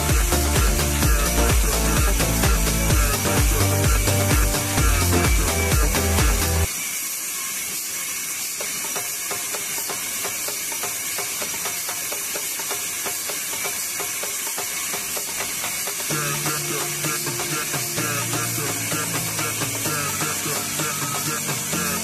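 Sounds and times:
background music beat: 0.0s - 6.7s, 14.6s - 22.0s
saw blade cutting log: 0.0s - 22.0s.

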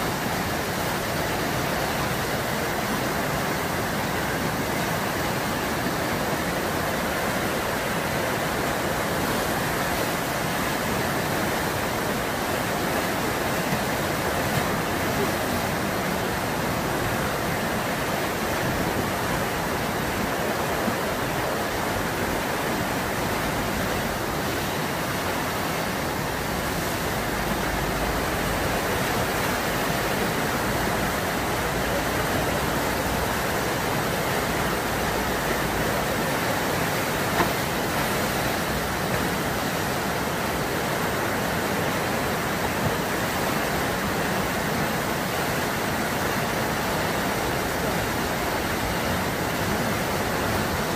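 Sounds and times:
river water rushing: 0.0s - 50.9s.

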